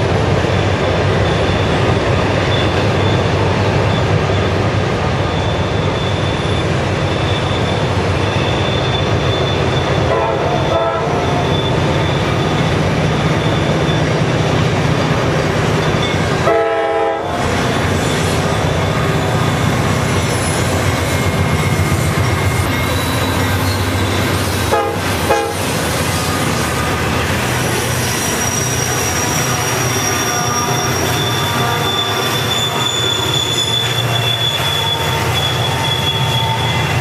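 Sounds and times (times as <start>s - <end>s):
locomotive horn blasts: 10.0s - 11.5s, 16.4s - 17.4s, 24.7s - 25.6s, 29.2s - 33.3s.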